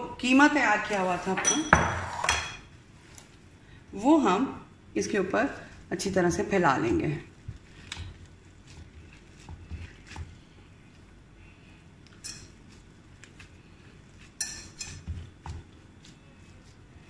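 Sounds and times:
gloves rustling: 7.3 - 17.0
hands patting meat: 7.4 - 10.6, 14.9 - 16.9.

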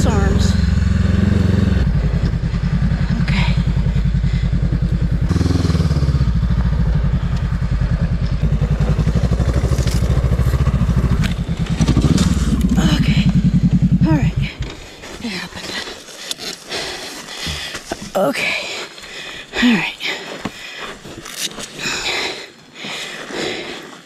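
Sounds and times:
motorcycle engine running: 0.0 - 15.6.

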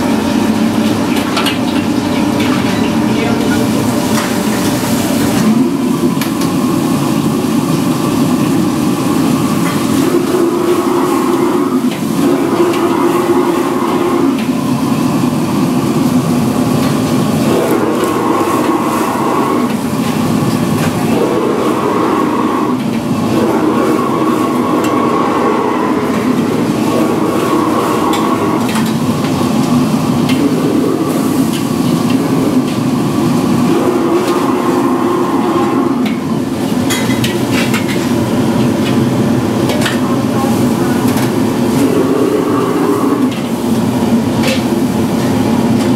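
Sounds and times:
gas burners roaring: 0.0 - 45.9.

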